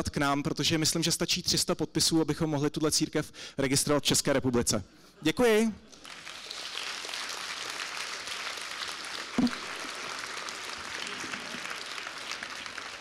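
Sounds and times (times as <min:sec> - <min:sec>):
audience applauding: 0:05.9 - 0:13.0
brief thump: 0:09.4 - 0:09.6.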